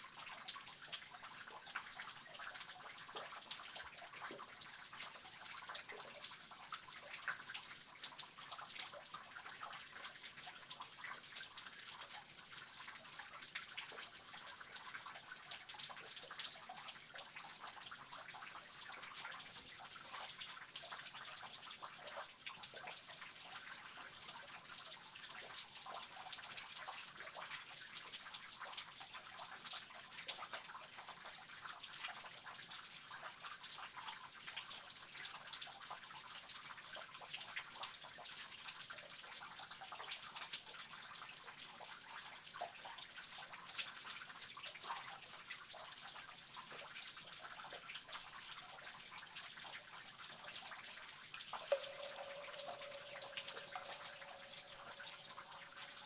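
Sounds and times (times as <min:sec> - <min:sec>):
water dripping: 0:00.1 - 0:56.0
running water: 0:47.7 - 0:56.0.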